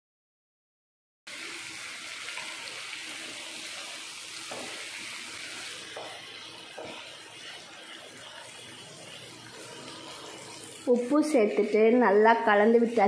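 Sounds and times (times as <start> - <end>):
chickpeas sizzling in oil: 1.3 - 13.0
wooden spatula scraping pan: 5.9 - 11.1.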